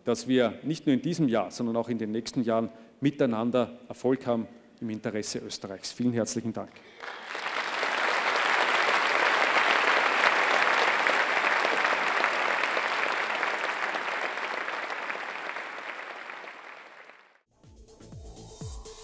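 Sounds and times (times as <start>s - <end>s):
large audience applauding: 6.9s - 17.4s.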